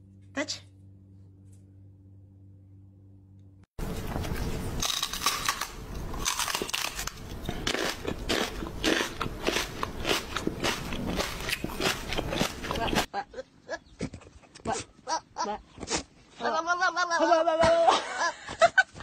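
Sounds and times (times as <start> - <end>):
crunchy food chewing: 3.8 - 13.1.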